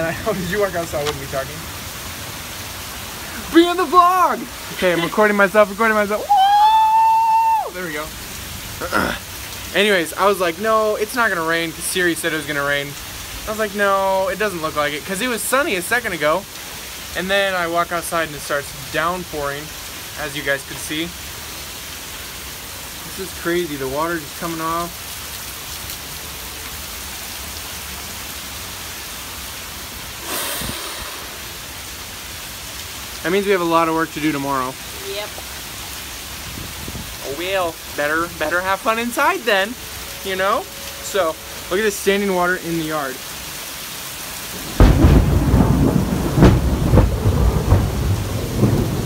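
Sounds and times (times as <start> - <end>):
heavy rain pouring: 0.0 - 49.0
water streaming off roof: 0.0 - 49.0
thunder rumbling and cracking: 44.5 - 49.0.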